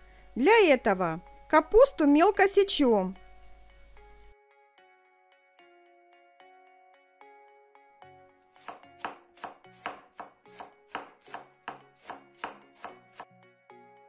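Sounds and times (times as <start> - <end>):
light chiming background music: 0.2 - 8.4.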